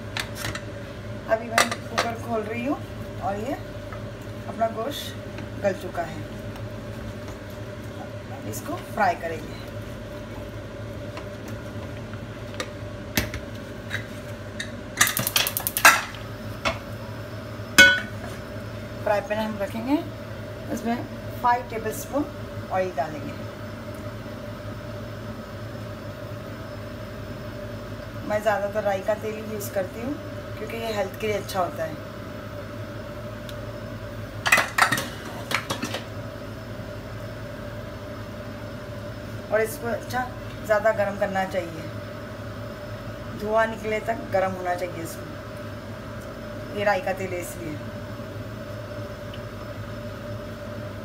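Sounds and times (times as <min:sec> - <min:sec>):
metal cookware clattering: 0:17.8 - 0:18.2
kitchenware clattering: 0:34.5 - 0:36.0.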